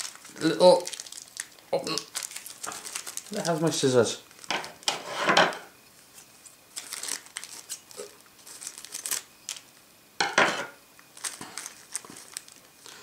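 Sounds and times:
plastic bag crinkling: 0.0 - 4.9, 6.7 - 9.8, 11.1 - 13.0.

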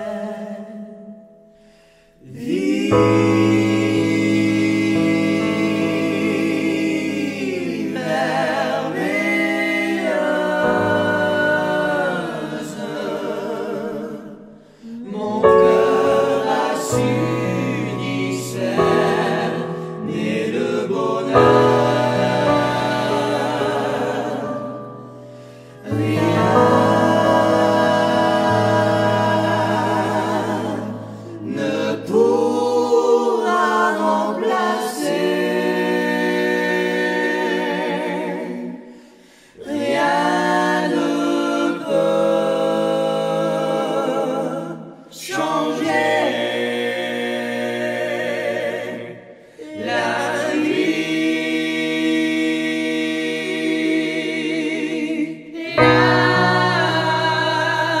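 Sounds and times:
men singing a hymn a cappella: 0.0 - 58.0
singers breathing: 1.5 - 2.2, 14.5 - 15.0, 25.1 - 25.9, 38.8 - 39.6, 49.3 - 49.7.

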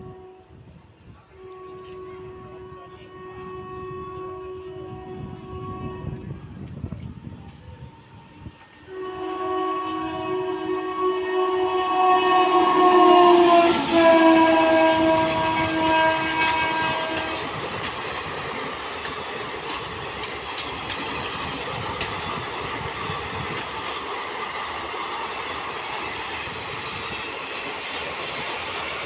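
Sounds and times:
train horn blast: 0.0 - 6.8, 8.7 - 19.8
train wheels clattering past: 12.6 - 29.0.

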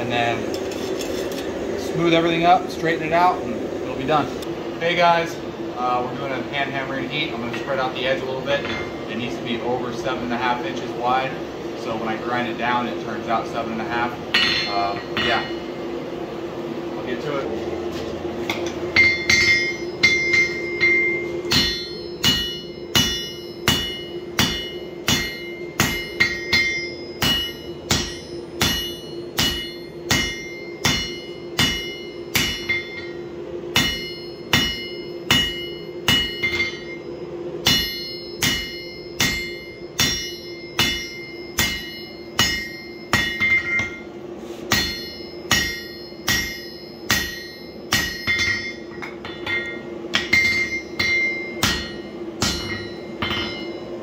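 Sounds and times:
steady hum: 0.0 - 54.0
hammer ringing on hot steel: 6.2 - 10.6, 13.6 - 15.8, 18.5 - 54.0.

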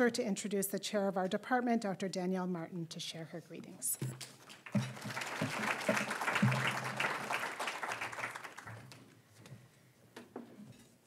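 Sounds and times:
audience applauding: 4.4 - 9.1.

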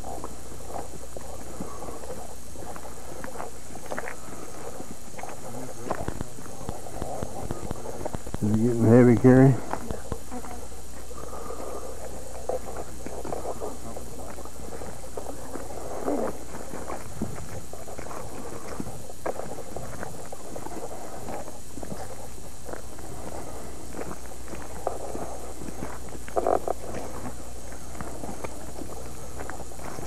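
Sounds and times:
low recording hum: 0.0 - 30.0
tape hiss: 0.0 - 30.0
footsteps on grassy track: 1.2 - 10.2.

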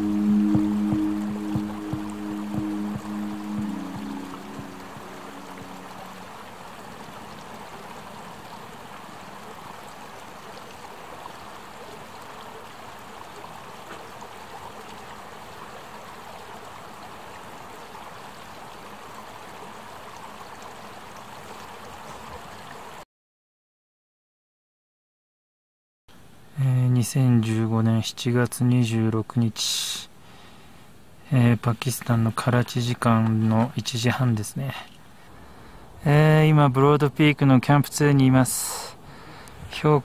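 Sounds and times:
background music: 0.0 - 6.6
running water: 0.0 - 23.0, 31.2 - 40.0.

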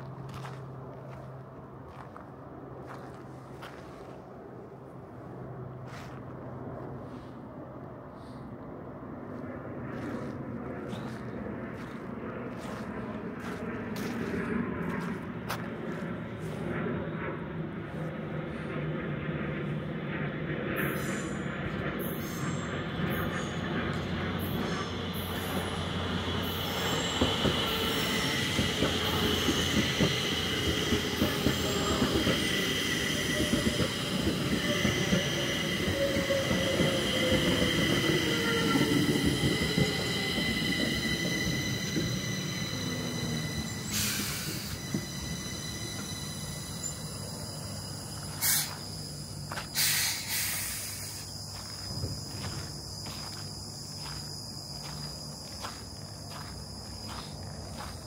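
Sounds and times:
footsteps: 0.0 - 4.3, 5.8 - 6.5, 9.3 - 16.8, 51.5 - 58.0
train wheel squeal: 9.1 - 58.0
train motor whine: 9.3 - 58.0
short bursts of hiss: 48.4 - 48.7, 49.7 - 51.3.

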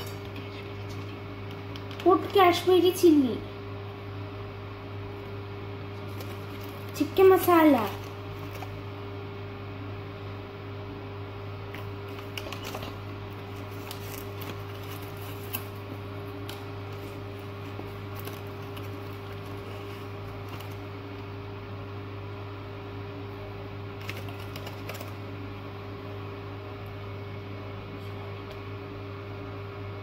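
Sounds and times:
low mechanical hum: 0.0 - 30.0.

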